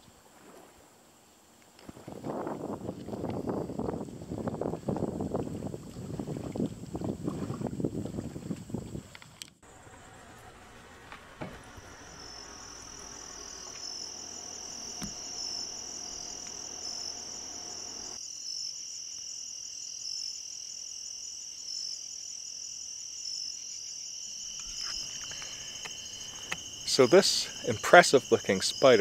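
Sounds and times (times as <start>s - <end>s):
crickets trilling: 9.7s - 29.0s.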